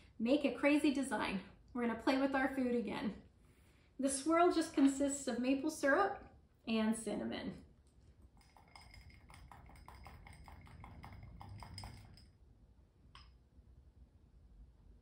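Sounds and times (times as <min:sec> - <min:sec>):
spoon clinking glass bowl: 0:08.4 - 0:12.4.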